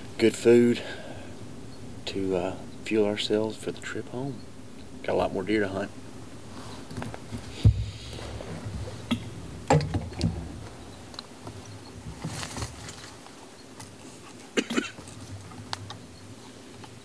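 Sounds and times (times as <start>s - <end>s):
thumps: 6.9s - 10.8s.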